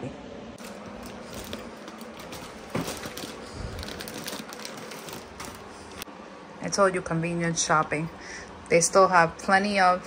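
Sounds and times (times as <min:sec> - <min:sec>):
plastic bag and foil crinkling: 0:00.6 - 0:06.0.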